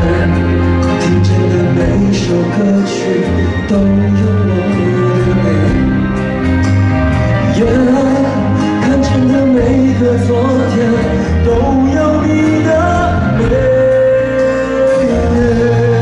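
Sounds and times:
vocalists singing pop ballad: 0:00.0 - 0:06.8, 0:07.4 - 0:16.0
electric and acoustic guitars: 0:00.0 - 0:16.0
steady bass line: 0:00.0 - 0:16.0.

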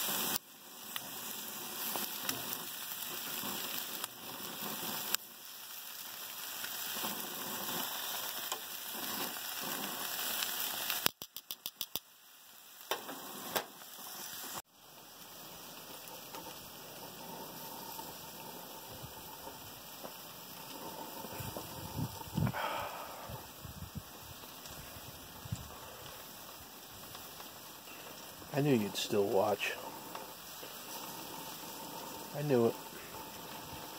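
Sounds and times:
meat sizzling on a grill: 0:00.0 - 0:33.9
sharp clicks: 0:11.0 - 0:12.1.

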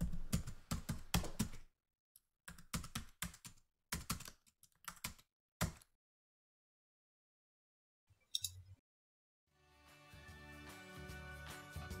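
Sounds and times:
keyboard typing: 0:02.5 - 0:05.8.

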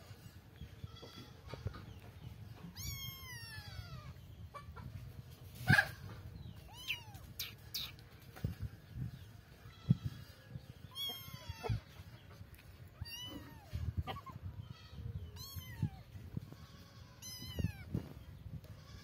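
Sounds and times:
kitten meowing: 0:02.6 - 0:04.2, 0:06.7 - 0:08.0, 0:10.9 - 0:11.8, 0:13.0 - 0:14.3, 0:15.4 - 0:16.0, 0:17.2 - 0:17.9.

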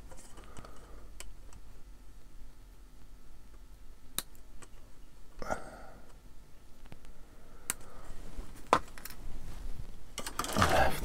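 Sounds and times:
plastic parts clicking and tapping: 0:08.6 - 0:09.2, 0:10.2 - 0:11.0.

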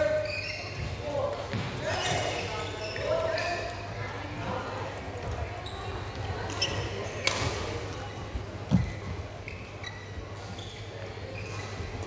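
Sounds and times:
shoe squeaks: 0:00.0 - 0:01.0, 0:01.9 - 0:03.4, 0:05.6 - 0:07.3, 0:08.7 - 0:12.0.

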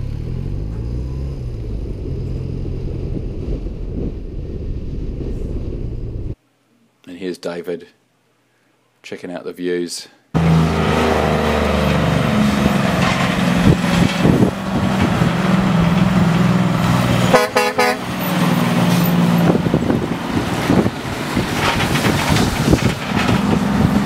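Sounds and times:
truck diesel engine passing: 0:00.0 - 0:06.4, 0:10.4 - 0:24.0
truck horn toot: 0:17.2 - 0:18.4.

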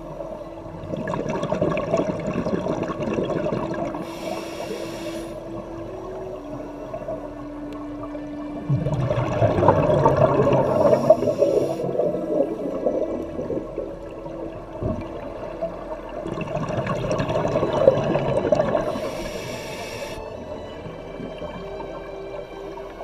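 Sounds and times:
exhaled bubbles rushing: 0:00.8 - 0:04.1, 0:08.2 - 0:23.0
regulator hiss: 0:04.0 - 0:05.6, 0:10.6 - 0:12.1, 0:18.8 - 0:20.3.

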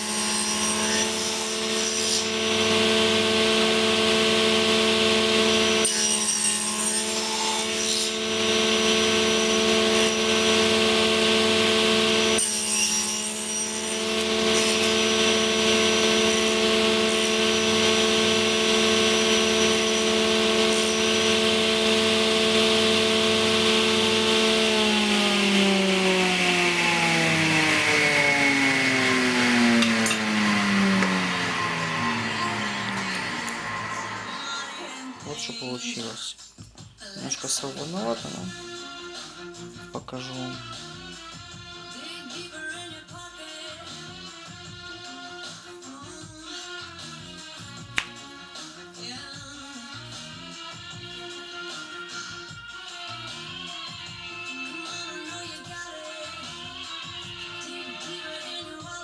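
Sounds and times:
saw cutting wood: 0:00.0 - 0:36.2
circular saw whine: 0:00.0 - 0:36.3.

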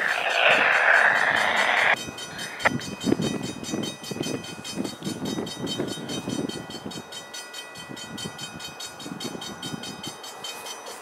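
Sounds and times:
low rumble: 0:00.0 - 0:02.8
railroad crossing bell ringing: 0:00.0 - 0:11.0.

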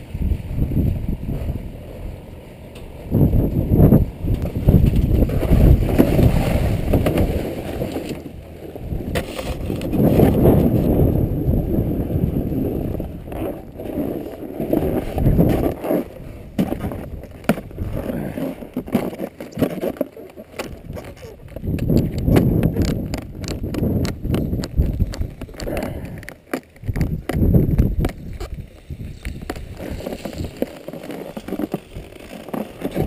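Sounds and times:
wind buffeting microphone: 0:00.0 - 0:18.7, 0:20.7 - 0:30.7
snowboard scraping over snow: 0:00.1 - 0:33.0.

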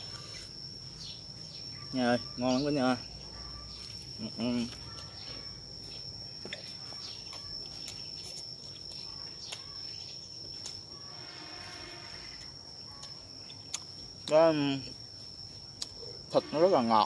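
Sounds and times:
high-pitched insect drone: 0:00.0 - 0:17.0
faint chewing clicks: 0:06.5 - 0:09.8, 0:12.9 - 0:14.4, 0:15.8 - 0:16.0.

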